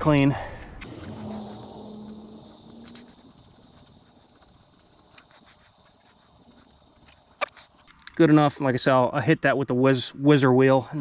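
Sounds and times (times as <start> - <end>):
razor scraper scratching: 0.8 - 7.9.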